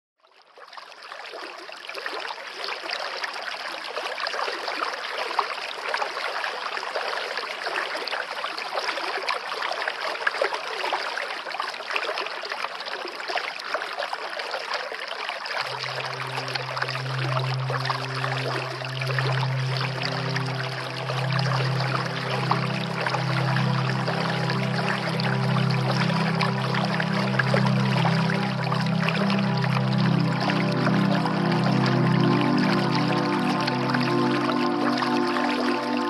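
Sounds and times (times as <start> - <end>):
low steady hum: 15.6 - 36.0.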